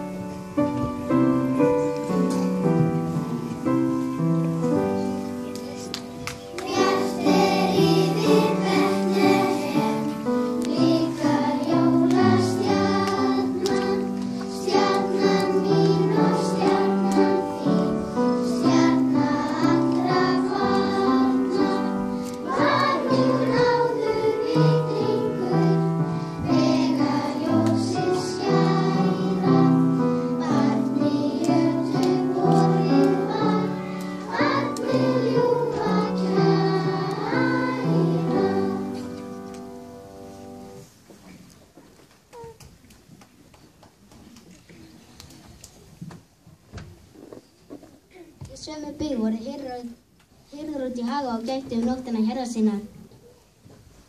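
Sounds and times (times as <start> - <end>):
children's choir singing: 0.0 - 41.0.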